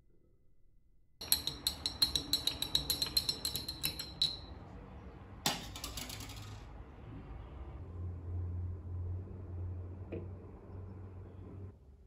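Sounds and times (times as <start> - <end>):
rapid glass clinking: 1.2 - 4.6.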